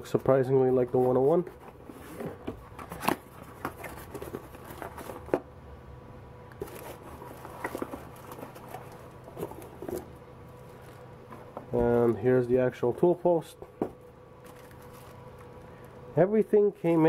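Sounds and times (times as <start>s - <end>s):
faint steady hum: 0.0s - 17.0s
plastic bag rustling: 0.8s - 5.4s, 6.6s - 12.3s, 14.4s - 15.7s.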